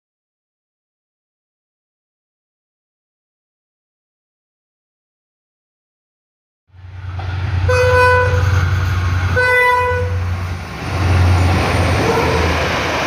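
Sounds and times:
locomotive engine drone: 6.7s - 13.0s
train rushing past: 6.7s - 13.0s
train horn blasts: 7.6s - 10.3s, 12.0s - 12.6s.

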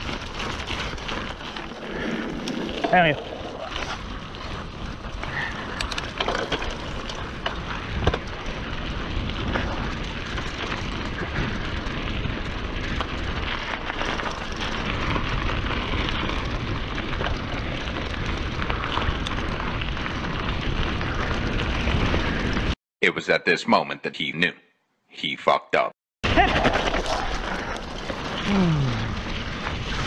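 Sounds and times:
stones and twigs crackling: 0.0s - 22.6s
bike tyres rushing on dirt: 0.0s - 22.8s, 26.3s - 30.0s.

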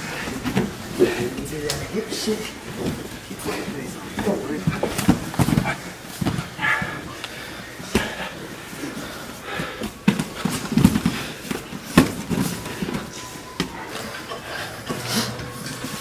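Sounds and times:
bodies thumping on mats: 4.1s - 7.0s, 9.8s - 13.8s.

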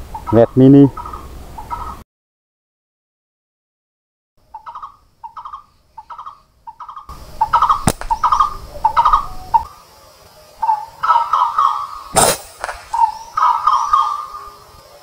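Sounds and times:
bird calling: 0.0s - 2.0s, 4.4s - 15.0s
sharp snap: 7.8s - 8.2s, 12.1s - 13.0s.

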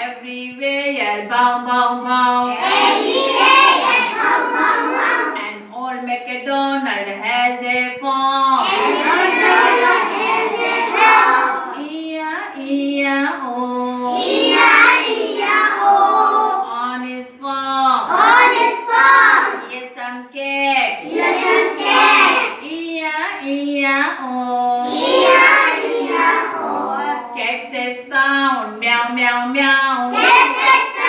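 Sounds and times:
children singing in chorus: 2.5s - 5.4s, 8.6s - 11.8s, 13.9s - 16.7s, 18.0s - 19.6s, 21.0s - 22.6s, 24.7s - 27.4s, 30.1s - 31.0s.

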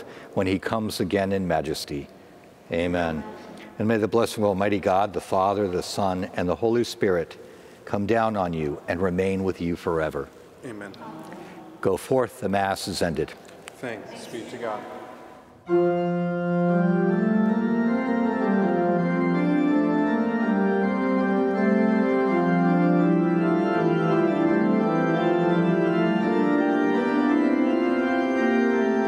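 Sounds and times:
church organ sustained chords: 15.6s - 29.0s.

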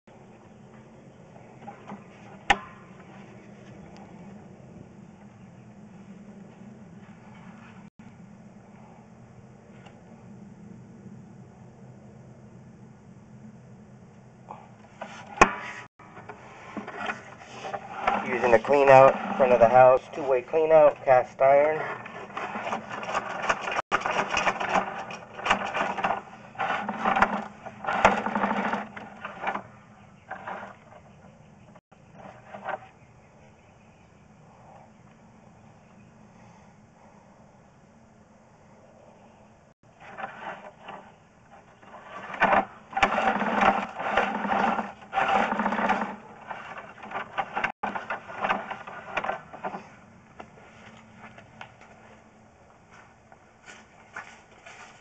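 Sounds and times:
steady low hum: 0.1s - 55.0s
cable rattling and scraping in drain: 14.9s - 31.2s, 39.9s - 49.9s.

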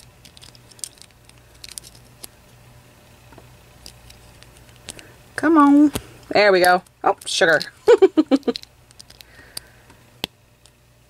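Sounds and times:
small plastic pieces clicking: 0.0s - 2.3s, 6.6s - 10.8s
low steady hum: 0.0s - 11.0s.

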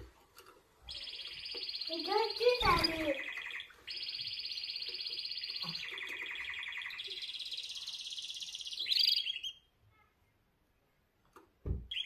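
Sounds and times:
canary singing trills: 0.8s - 9.7s.

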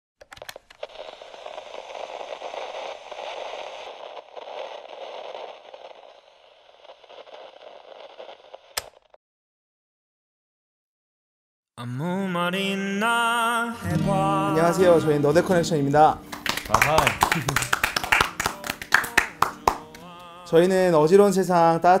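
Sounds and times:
crackling rustling noise: 0.2s - 9.2s, 14.1s - 20.5s.

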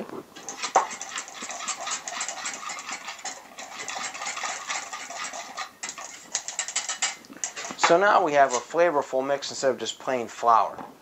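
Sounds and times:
wire whisk clinking in metal bowl: 0.4s - 8.7s.

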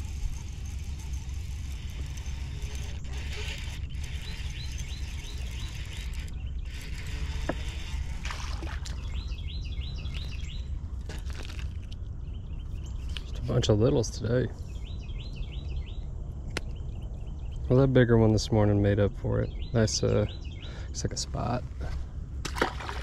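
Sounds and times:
small bird chirping: 0.0s - 17.7s
low outdoor rumble: 0.0s - 23.0s.

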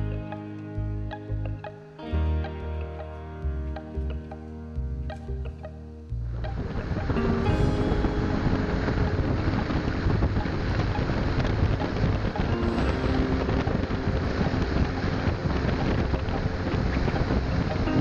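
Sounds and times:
wind buffeting microphone: 6.5s - 18.0s
speedboat engine running: 6.6s - 18.0s.

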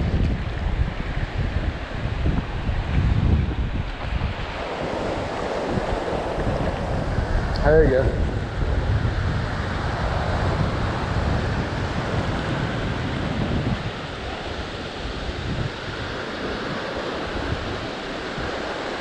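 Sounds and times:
ocean surf washing ashore: 0.0s - 19.0s
wind buffeting microphone: 0.0s - 19.0s.

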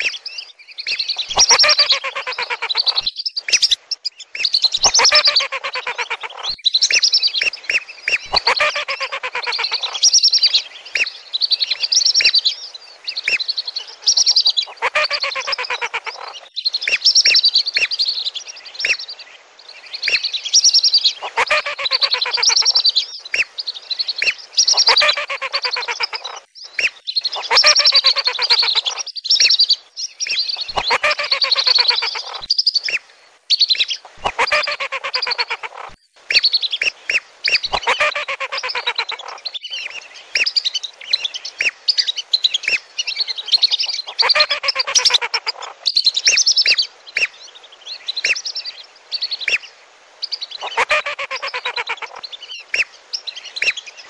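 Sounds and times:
ducks whistling: 0.9s - 3.8s, 4.4s - 10.0s, 14.1s - 16.4s, 21.1s - 22.8s, 24.2s - 29.0s, 30.6s - 33.0s, 34.1s - 35.7s, 36.3s - 39.4s, 43.5s - 45.7s, 50.6s - 52.2s.

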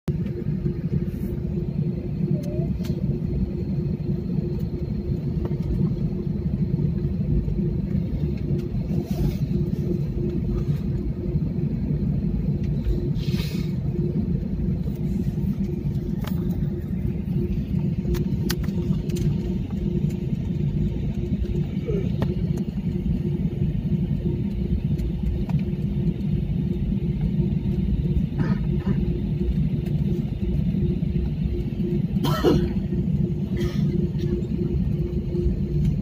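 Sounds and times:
jet engine and wheel rumble: 0.0s - 36.0s
steady cabin hum: 0.1s - 36.0s.

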